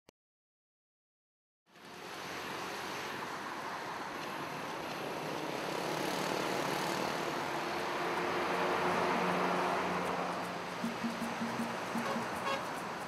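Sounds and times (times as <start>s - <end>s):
outdoor rushing noise: 4.3s - 13.0s.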